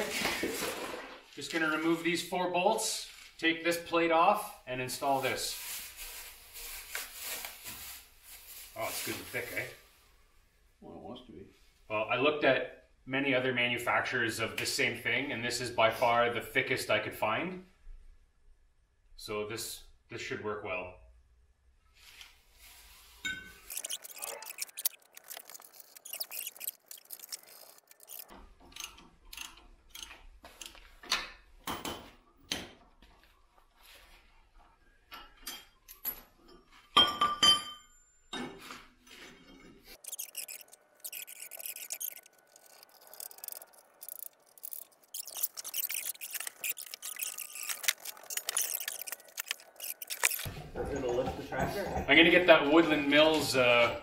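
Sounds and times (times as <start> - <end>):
rustling: 5.0 - 10.1, 38.8 - 51.5
metal parts clinking and knocking: 40.0 - 50.5.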